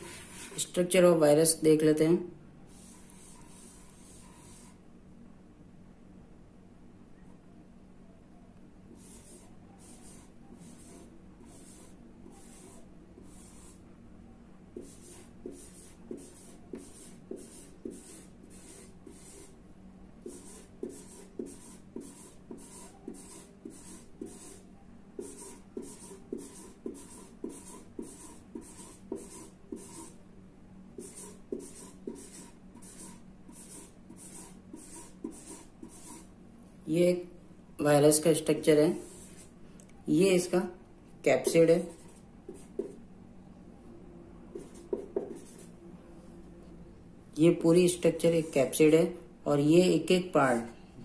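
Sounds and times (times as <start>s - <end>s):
marker pen scratching: 0.0s - 0.7s, 2.7s - 4.8s, 8.9s - 13.8s, 14.8s - 19.6s, 20.2s - 30.2s, 31.0s - 36.3s, 38.7s - 39.5s, 41.4s - 43.0s, 44.5s - 45.7s.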